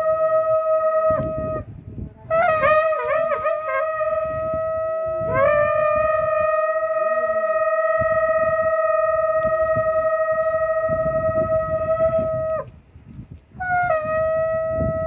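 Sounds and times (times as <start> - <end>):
long horn blowing a note: 0.0 - 12.7.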